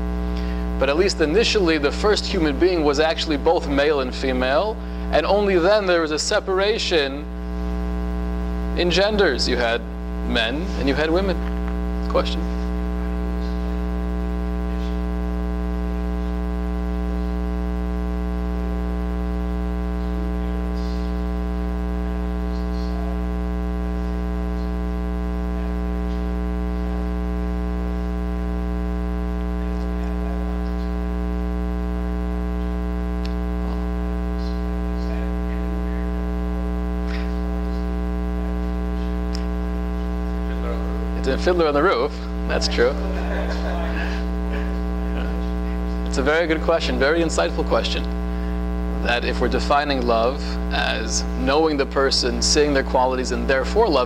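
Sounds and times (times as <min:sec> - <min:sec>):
electrical mains hum: 0:00.0 - 0:54.0.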